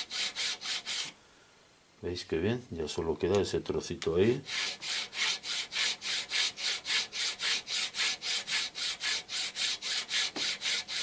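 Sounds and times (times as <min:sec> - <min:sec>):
file rasping on metal coin: 0:00.0 - 0:01.1, 0:04.4 - 0:11.0.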